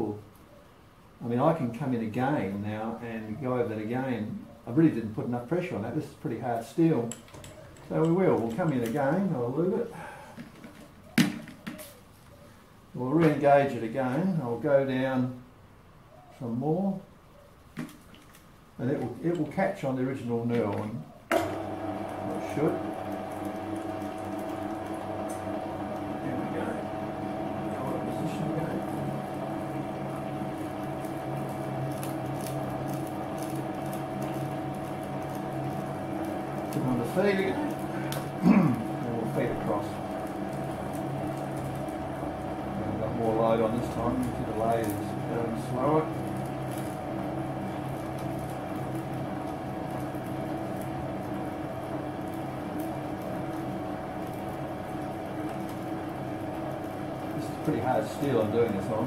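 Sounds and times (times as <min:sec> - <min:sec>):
metal lathe humming: 0:21.3 - 0:59.0
knurling wheels rolling on steel: 0:21.6 - 0:59.0.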